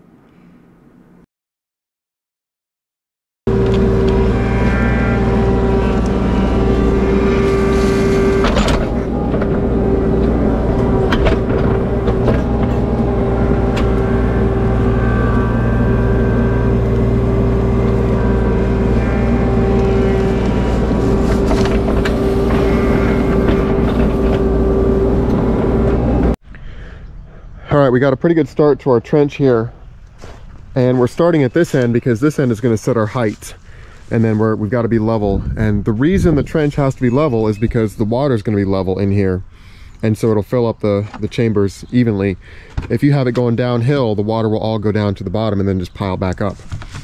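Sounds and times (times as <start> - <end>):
hydraulic whine: 3.5 - 26.4
diesel engine running: 3.5 - 27.4.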